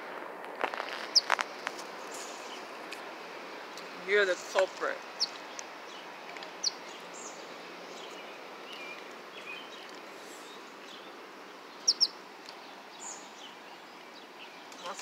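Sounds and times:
steady outdoor hiss: 0:00.0 - 0:15.0
sparrow chirps: 0:04.4 - 0:15.0.

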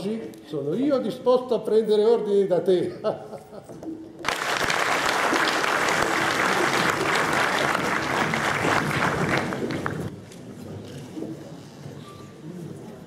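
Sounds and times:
audience applauding: 0:04.2 - 0:10.1.

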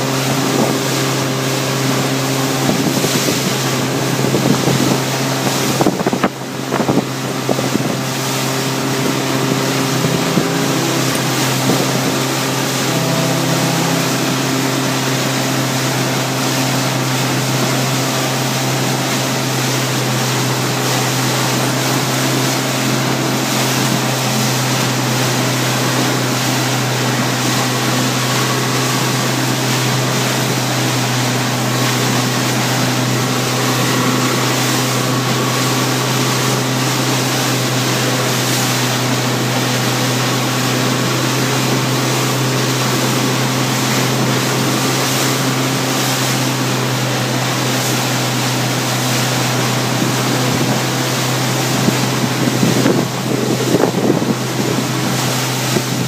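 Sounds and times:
wind buffeting microphone: 0:00.0 - 0:18.0, 0:46.7 - 0:56.0
motorboat engine humming: 0:00.0 - 0:56.0
water rushing past hull: 0:00.0 - 0:56.0.

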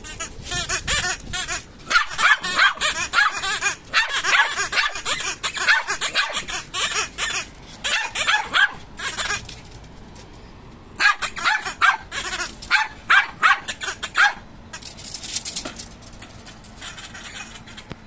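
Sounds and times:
small dog yapping: 0:01.8 - 0:09.5, 0:11.0 - 0:14.4.

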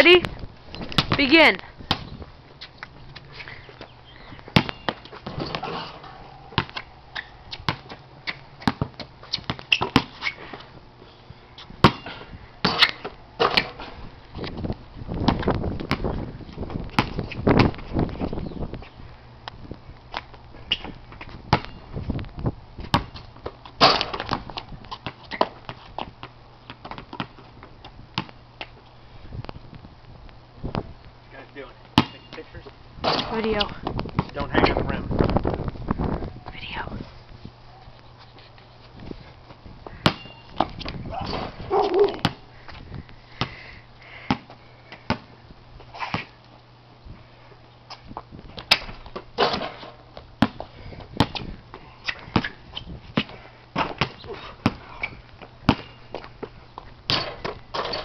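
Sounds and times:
basketball bouncing on concrete: 0:00.8 - 0:02.2, 0:04.4 - 0:05.9, 0:06.5 - 0:10.2, 0:11.8 - 0:13.9, 0:15.2 - 0:17.9, 0:20.2 - 0:21.8, 0:22.8 - 0:27.6, 0:28.2 - 0:28.4, 0:32.0 - 0:32.4, 0:33.0 - 0:34.4, 0:39.8 - 0:42.8, 0:45.1 - 0:45.3, 0:48.6 - 0:51.6, 0:52.3 - 0:58.0
basketball rim banging and rattling: 0:04.5 - 0:06.8, 0:23.8 - 0:25.5, 0:33.0 - 0:33.6, 0:48.7 - 0:50.6, 0:57.1 - 0:58.0.

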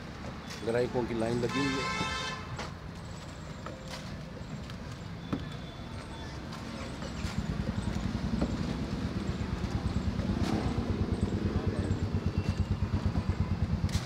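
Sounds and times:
street noise: 0:00.0 - 0:14.0
engine idling: 0:07.2 - 0:14.0.

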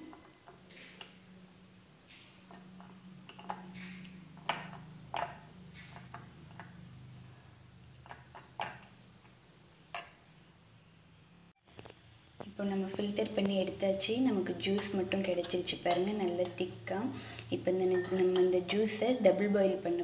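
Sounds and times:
steady low hum: 0:00.0 - 0:20.0
spoon clinking against strainer: 0:02.5 - 0:06.7, 0:14.7 - 0:16.7, 0:17.7 - 0:18.9.

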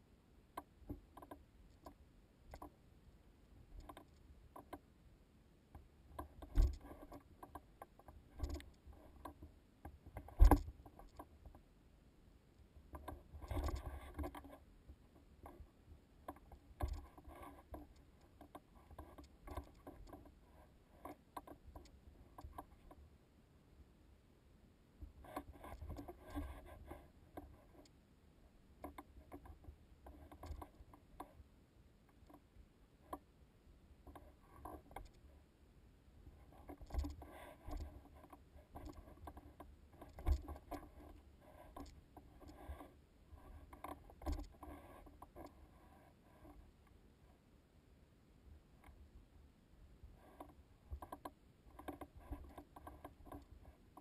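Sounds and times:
gear clicking and knocking: 0:40.0 - 0:40.9.

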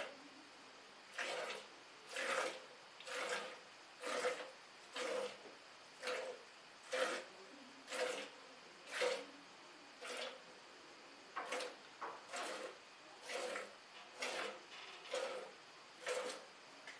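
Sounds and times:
milk squirting into steel bucket: 0:01.1 - 0:07.3, 0:07.9 - 0:09.3, 0:10.0 - 0:10.4, 0:11.4 - 0:16.5.

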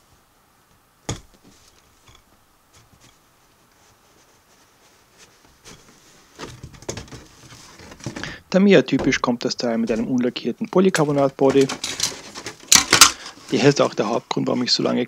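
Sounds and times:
cardboard scraping and rustling: 0:02.7 - 0:10.2, 0:11.0 - 0:14.2.

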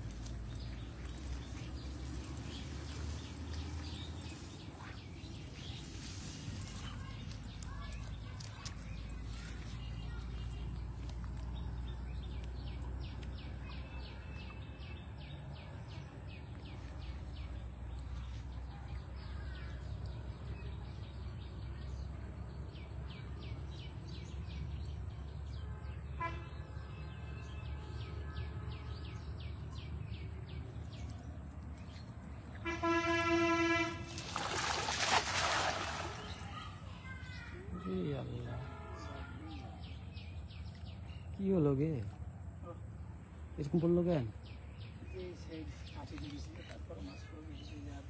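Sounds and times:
horn: 0:32.6 - 0:34.2
cast net splashing on water: 0:33.4 - 0:37.0.

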